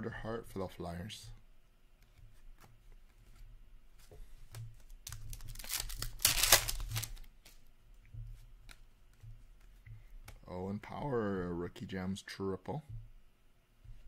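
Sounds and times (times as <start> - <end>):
wrapper tearing: 5.0 - 7.4
cards clicking: 5.0 - 7.6.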